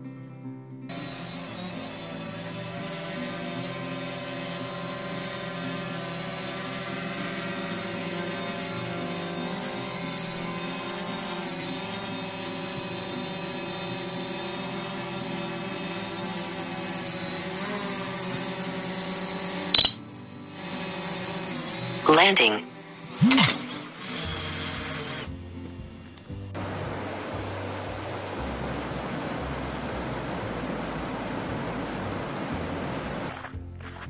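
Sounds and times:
drone propellers whining: 0.9 - 33.3
sharp click: 23.2 - 23.7.

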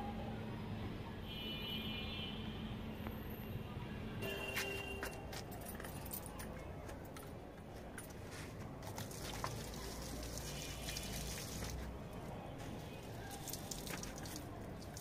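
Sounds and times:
water trickling into soil: 8.8 - 15.0.

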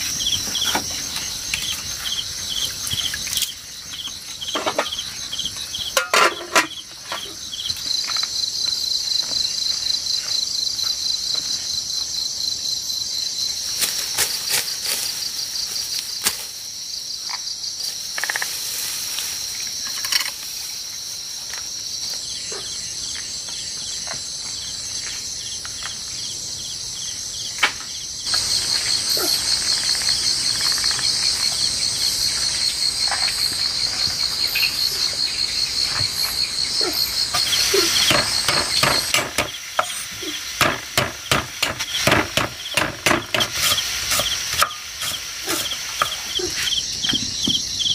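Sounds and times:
insects trilling: 0.0 - 47.9
scattered clicks and knocks: 38.1 - 40.0.

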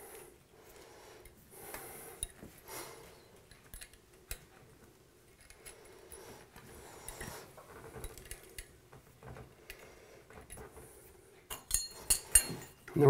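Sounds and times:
allen key clicking and scraping: 5.3 - 8.8.

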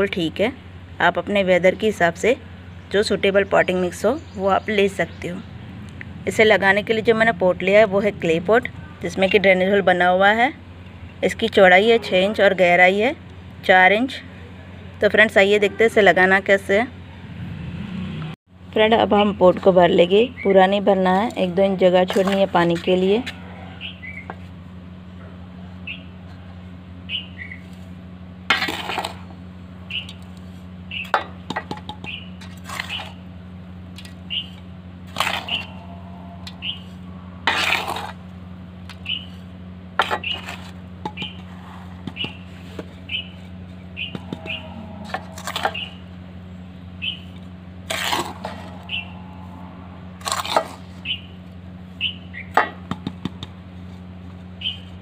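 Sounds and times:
steady low hum: 0.0 - 55.0
metal trowel scraping metal basin: 37.4 - 38.2.

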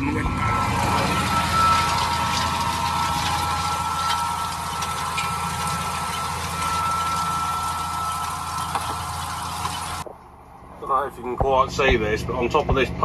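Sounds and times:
tractor diesel engine: 0.0 - 10.1
high whine: 0.0 - 13.0.

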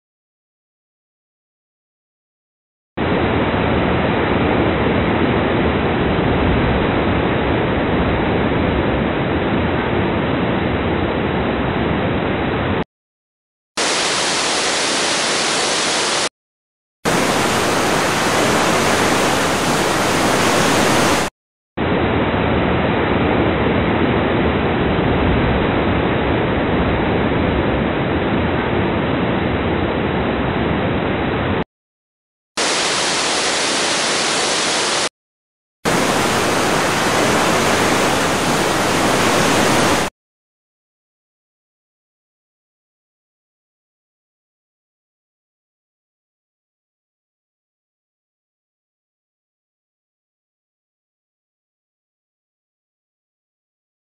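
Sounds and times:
waterfall rushing: 13.8 - 16.3, 17.1 - 21.3, 32.6 - 35.1, 35.9 - 40.1.

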